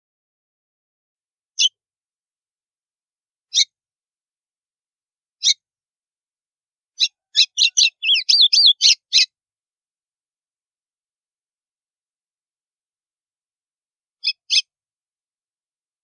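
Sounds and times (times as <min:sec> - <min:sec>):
bird singing sharp notes: 0:07.4 - 0:09.2.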